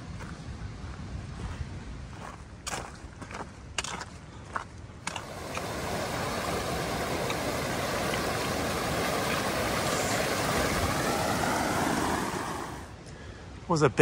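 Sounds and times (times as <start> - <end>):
creek water rushing over rocks: 5.1 - 13.0.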